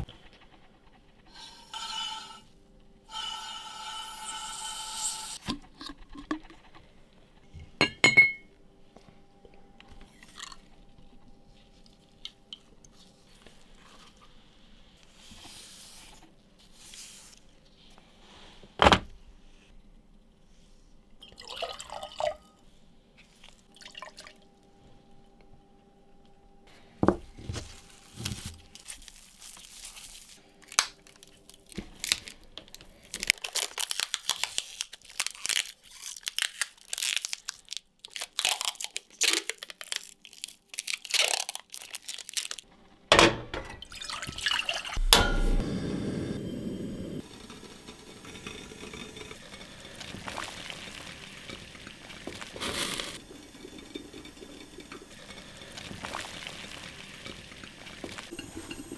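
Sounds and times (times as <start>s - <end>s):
faint steady hum: 6.9s - 18.2s, 19.1s - 28.9s, 45.0s - 58.9s
glass jar lid clinking: 7.8s - 8.5s
aluminium foil crinkling: 27.6s - 42.7s.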